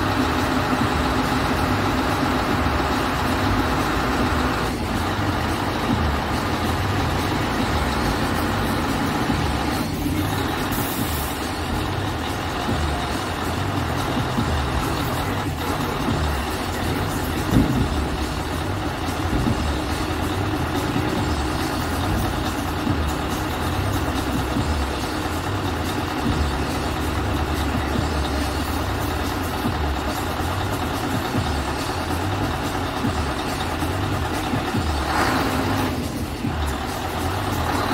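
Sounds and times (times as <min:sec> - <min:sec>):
truck diesel engine running: 0:00.0 - 0:37.9.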